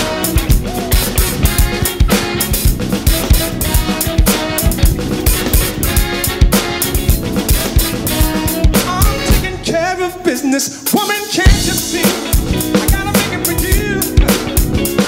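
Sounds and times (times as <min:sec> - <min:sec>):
electronic drum kit groove: 0:00.0 - 0:09.7, 0:10.9 - 0:15.0
funk band music: 0:00.0 - 0:15.0.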